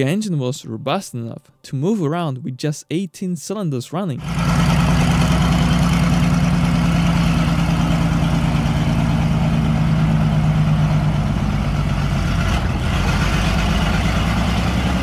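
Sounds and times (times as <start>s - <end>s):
engine running with deep hum: 4.2s - 15.0s.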